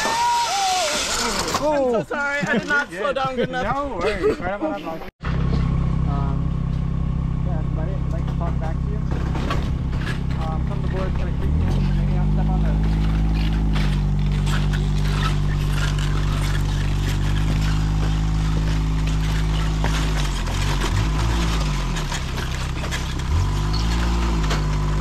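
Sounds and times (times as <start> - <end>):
engine running at low pitch: 5.2 - 25.0.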